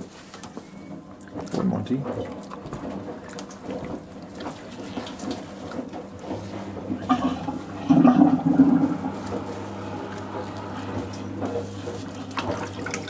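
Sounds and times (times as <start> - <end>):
water gurgling down a drain: 6.4 - 11.3.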